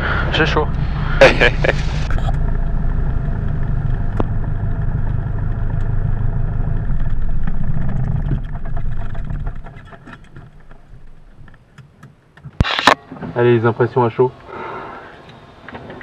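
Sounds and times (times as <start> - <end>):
aircraft piston engine idling: 0.0 - 11.5.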